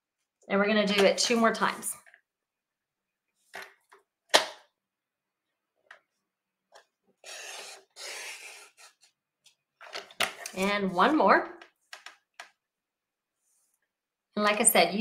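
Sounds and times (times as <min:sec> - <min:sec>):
blade rasping through paper: 0:07.2 - 0:09.1.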